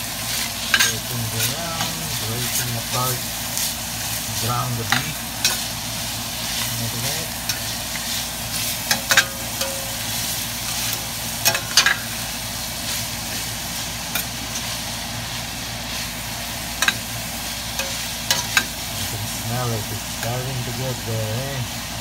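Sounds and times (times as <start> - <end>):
meat and vegetables sizzling in pan: 0.0 - 22.0.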